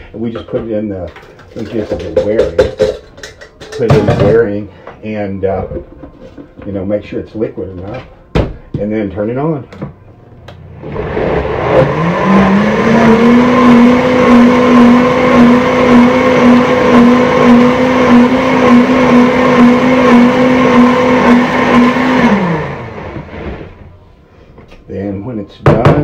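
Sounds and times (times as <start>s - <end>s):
blender motor running: 10.6s - 23.8s.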